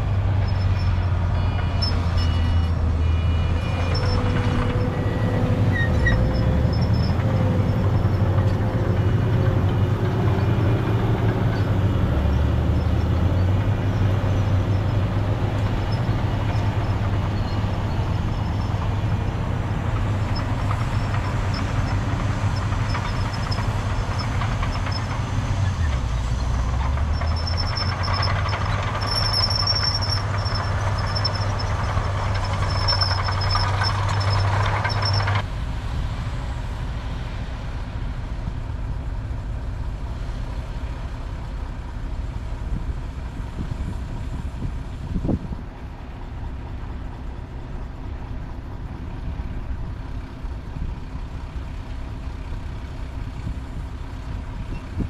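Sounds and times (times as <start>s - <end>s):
heavy diesel machinery running: 0.0s - 55.0s
high squeal: 0.4s - 9.4s, 10.1s - 35.4s.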